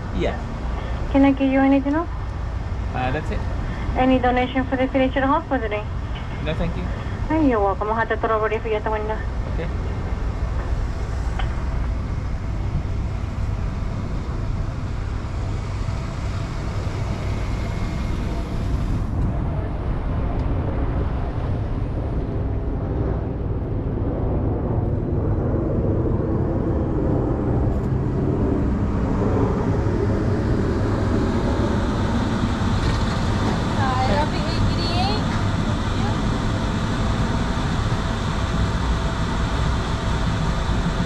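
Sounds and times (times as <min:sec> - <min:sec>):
car engine rumble: 0:00.0 - 0:07.7, 0:09.0 - 0:41.0
road noise inside car: 0:09.4 - 0:23.5, 0:26.6 - 0:41.0.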